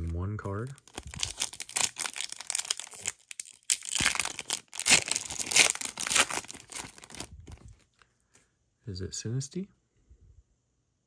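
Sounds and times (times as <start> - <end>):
trading cards crinkling and rustling: 0.0 - 8.0.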